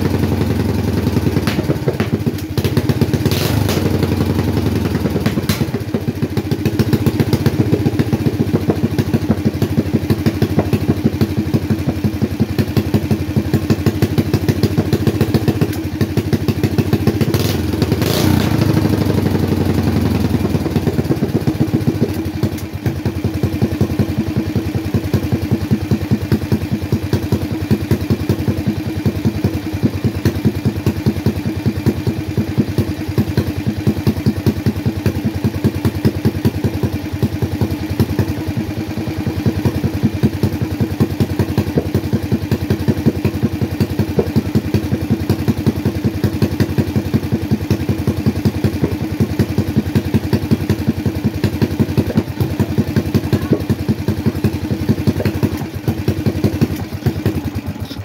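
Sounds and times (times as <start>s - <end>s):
single-cylinder engine running: 0.0s - 58.0s.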